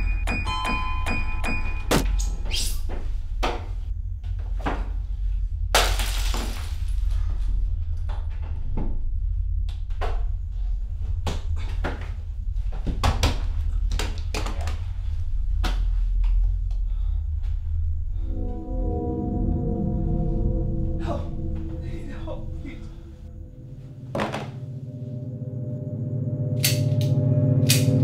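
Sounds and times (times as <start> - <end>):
steady low drone: 0.0 - 28.0
glass shattering: 5.8 - 6.7
sharp knocks and thuds: 11.2 - 14.8.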